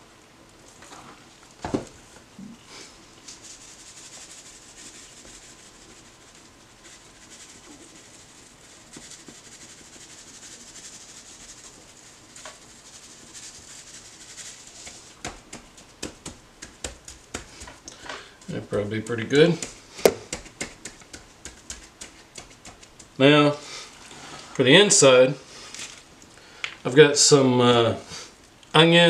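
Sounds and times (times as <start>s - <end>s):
hand rubbing seasoning into duck: 2.7s - 25.7s
knock on cutting board: 20.0s - 20.4s.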